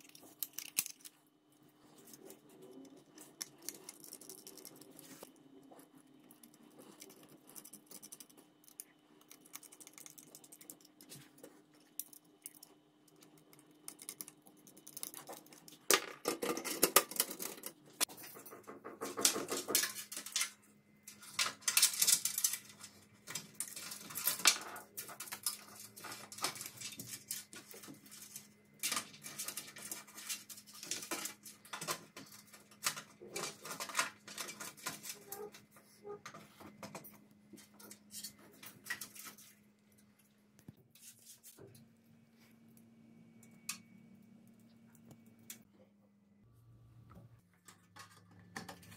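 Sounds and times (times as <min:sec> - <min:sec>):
clattering and rustling: 0:15.2 - 0:39.6.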